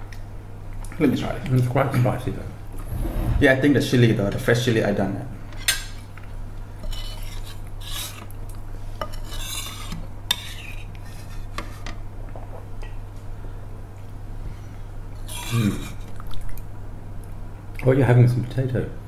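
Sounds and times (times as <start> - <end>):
steady low hum: 2.6 - 4.3.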